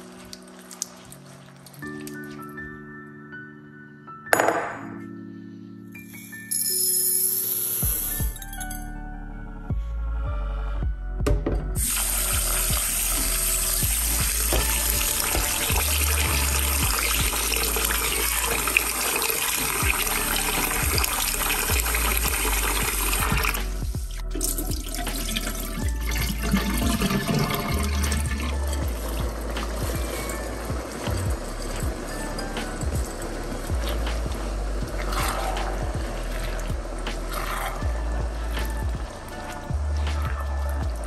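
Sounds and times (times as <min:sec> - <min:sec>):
water running into bowl: 0:11.8 - 0:23.6, 0:24.3 - 0:39.7
rice swished by hand: 0:32.6 - 0:37.8.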